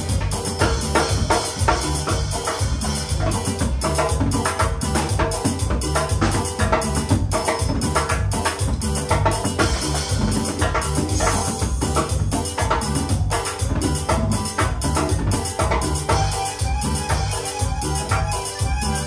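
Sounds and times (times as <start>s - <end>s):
cumbia music: 0.0s - 19.0s.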